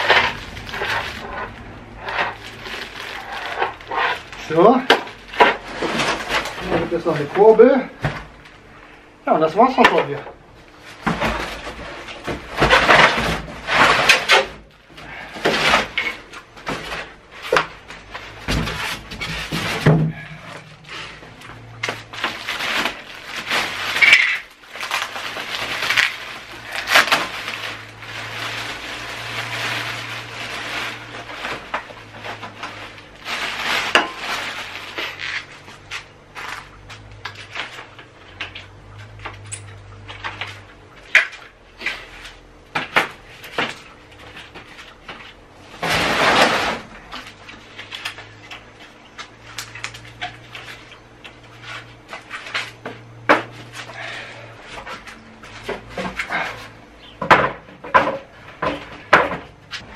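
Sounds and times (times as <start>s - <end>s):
plastic film rustling: 0.0s - 8.0s, 10.8s - 38.7s
parts clattering: 0.0s - 8.4s, 10.9s - 59.9s.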